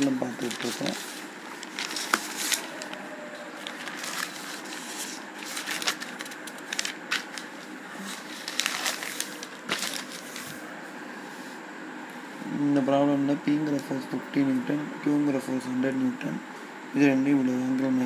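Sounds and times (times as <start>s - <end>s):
notebook pages rustling: 0.0s - 3.0s, 3.6s - 10.6s.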